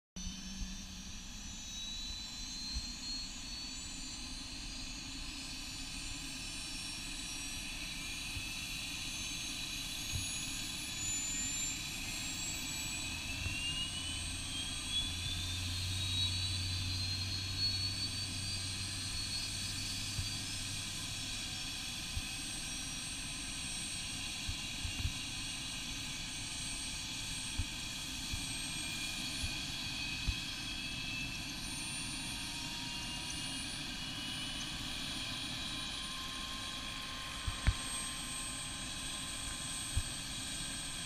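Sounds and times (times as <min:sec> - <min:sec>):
turbine whine rising in pitch: 0:00.2 - 0:41.0.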